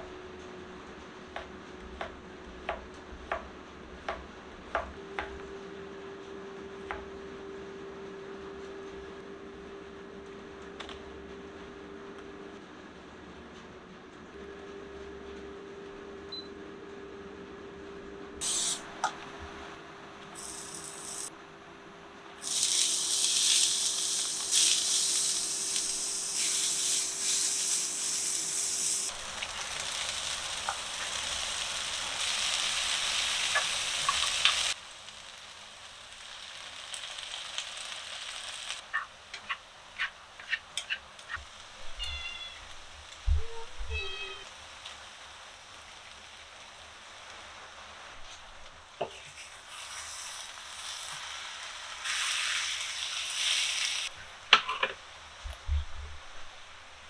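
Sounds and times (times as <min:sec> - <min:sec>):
vegetables sizzling in oil: 0:18.4 - 0:18.8, 0:20.4 - 0:21.3, 0:22.4 - 0:54.2.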